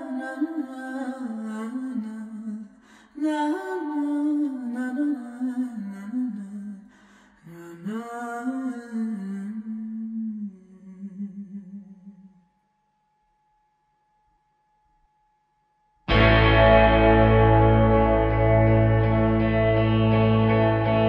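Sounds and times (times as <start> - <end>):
person singing wordless melody: 0.0 - 12.4.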